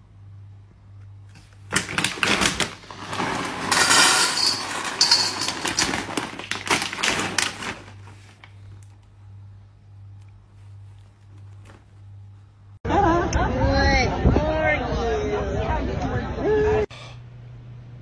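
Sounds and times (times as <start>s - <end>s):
kibble pouring into metal bowl: 1.8s - 8.0s.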